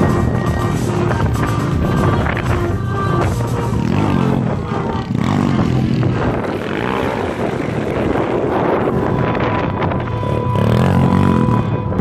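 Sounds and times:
pit bike engines revving: 0:00.0 - 0:12.0.

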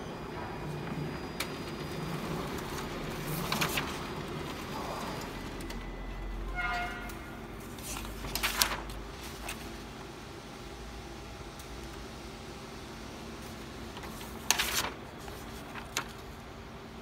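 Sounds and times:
copier humming: 0:00.0 - 0:17.0
paper rustling: 0:02.5 - 0:05.2, 0:07.6 - 0:09.9, 0:13.4 - 0:16.4
brief tone: 0:05.7 - 0:07.6.

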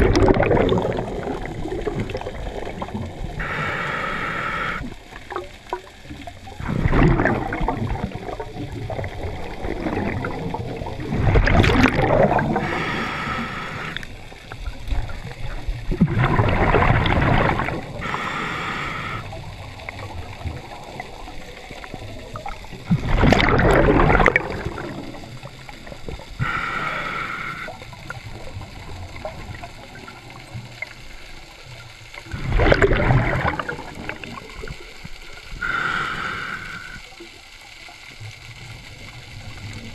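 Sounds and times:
gurgling rush of bubbles: 0:00.0 - 0:39.9
regulator inhale hiss: 0:03.3 - 0:05.0, 0:12.5 - 0:14.4, 0:17.8 - 0:19.9, 0:25.8 - 0:28.2, 0:34.3 - 0:37.4.

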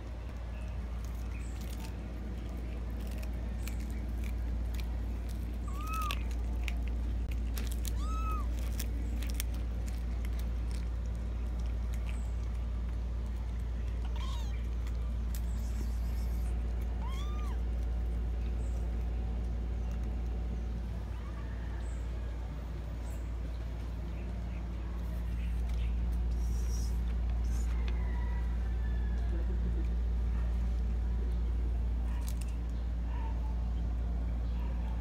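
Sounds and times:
cats chewing: 0:00.0 - 0:33.1
cat meowing: 0:05.7 - 0:06.3, 0:07.8 - 0:08.6, 0:14.0 - 0:14.7, 0:17.0 - 0:17.6.

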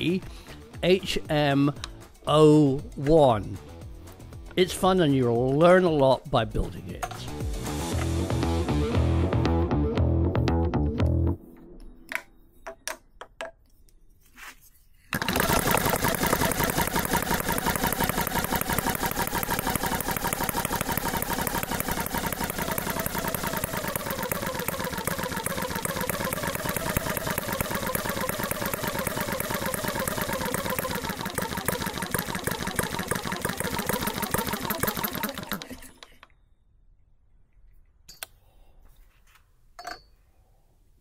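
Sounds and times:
model petrol engine running: 0:15.1 - 0:36.2.

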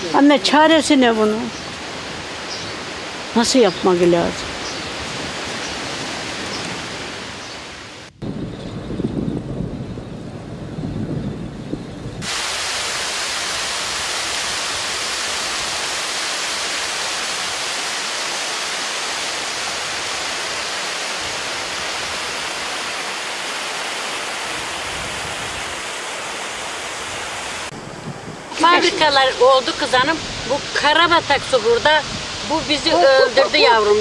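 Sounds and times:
water rushing over rocks: 0:00.0 - 0:08.1, 0:12.2 - 0:34.0.

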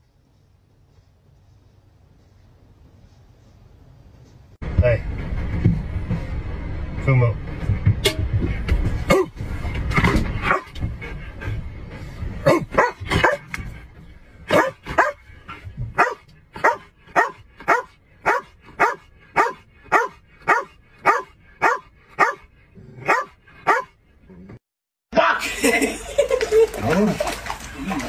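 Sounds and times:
dog barking: 0:10.4 - 0:10.8, 0:12.4 - 0:13.5, 0:14.5 - 0:15.2, 0:16.0 - 0:24.0.

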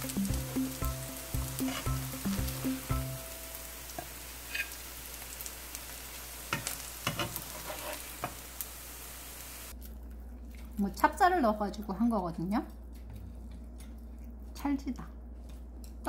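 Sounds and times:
background music with beat: 0:00.0 - 0:03.4
pancakes sizzling in oil: 0:00.0 - 0:09.8
spatula scraping pan: 0:01.6 - 0:02.0, 0:04.5 - 0:04.8, 0:06.6 - 0:08.4.

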